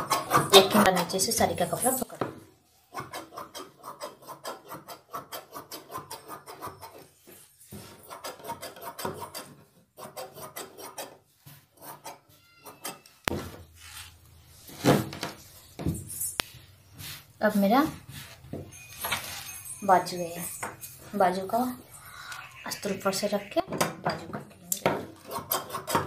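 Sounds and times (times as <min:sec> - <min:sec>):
cloth rustling: 0:13.3 - 0:17.4.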